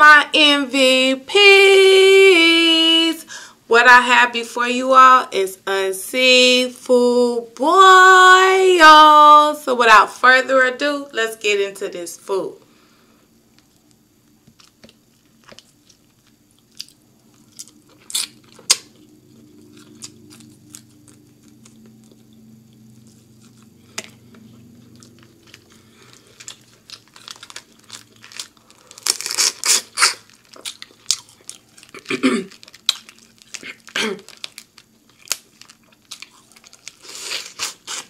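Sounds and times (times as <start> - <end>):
food crunching and crackling: 13.5 - 38.0.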